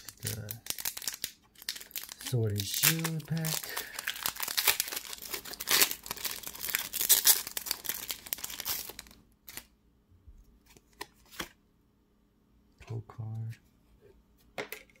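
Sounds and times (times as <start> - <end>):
foil wrapper tearing and crinkling: 0.0 - 9.7.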